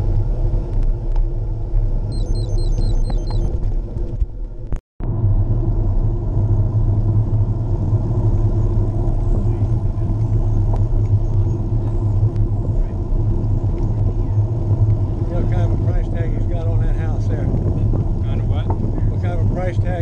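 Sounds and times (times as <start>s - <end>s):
wind buffeting microphone: 0.0s - 20.0s
tyre noise on pavement: 6.8s - 20.0s.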